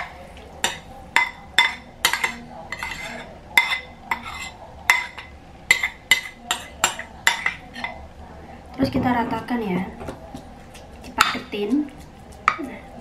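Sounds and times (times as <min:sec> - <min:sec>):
metal spoon clinking on ceramic bowl: 0:00.6 - 0:08.0.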